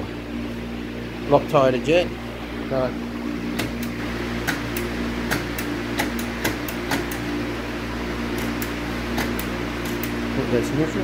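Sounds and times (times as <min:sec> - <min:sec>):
workshop fan humming: 0:00.0 - 0:11.0
sharp clicks and taps: 0:03.6 - 0:07.2.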